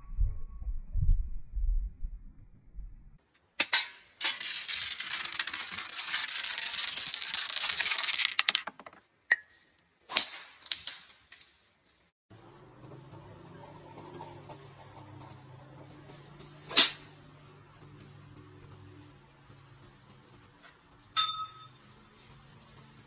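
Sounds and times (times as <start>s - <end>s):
dominoes toppling rapid clicking: 4.2s - 8.9s.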